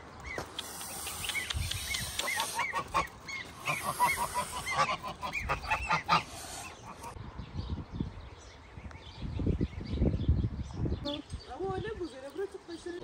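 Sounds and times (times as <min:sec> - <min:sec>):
ducklings peeping: 0:00.2 - 0:07.2.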